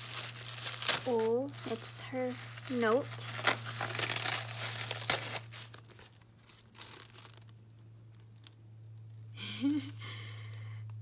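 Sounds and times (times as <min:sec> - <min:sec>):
tissue paper crinkling and tearing: 0:00.0 - 0:08.6
steady low hum: 0:00.0 - 0:11.0.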